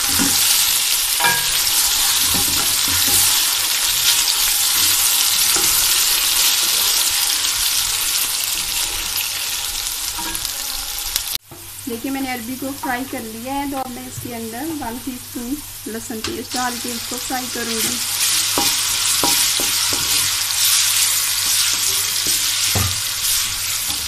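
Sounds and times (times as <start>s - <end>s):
spatula scraping a pan: 0.0s - 11.0s, 17.7s - 24.0s
vegetables sizzling in hot oil: 0.0s - 24.0s.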